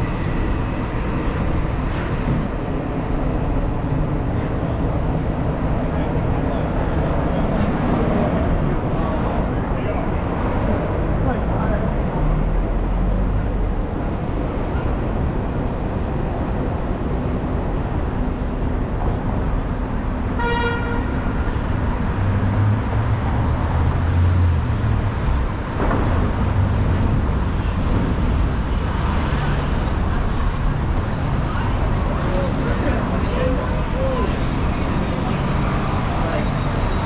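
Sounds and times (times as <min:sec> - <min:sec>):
passing vehicle engine rumble: 0:00.0 - 0:20.4, 0:21.1 - 0:37.0
street traffic noise: 0:00.0 - 0:37.0
car horn honk: 0:20.4 - 0:21.2.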